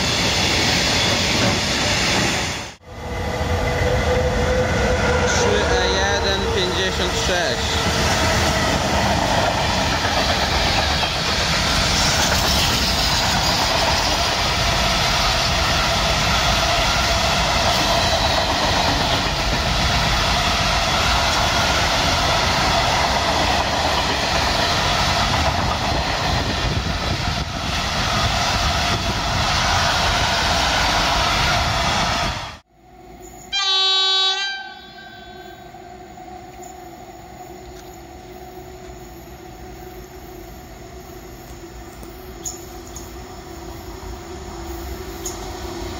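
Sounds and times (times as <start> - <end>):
freight train wagons rumbling: 0.0 - 32.4
locomotive horn blast: 33.5 - 35.6.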